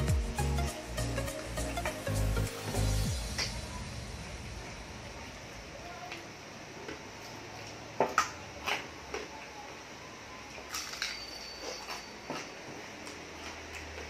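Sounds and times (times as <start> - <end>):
person chewing crunchy food: 11.6 - 14.0.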